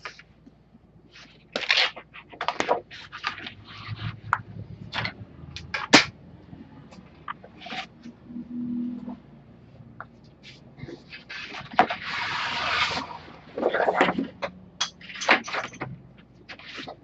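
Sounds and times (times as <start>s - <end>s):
card sheet rustling and scraping: 1.1s - 4.3s, 7.4s - 8.0s, 10.4s - 14.3s, 16.5s - 17.0s.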